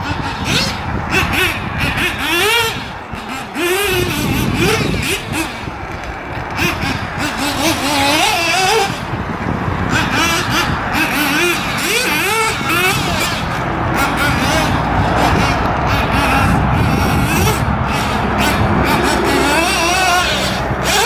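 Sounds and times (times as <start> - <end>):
rc buggy motor revving: 0.0 - 21.0.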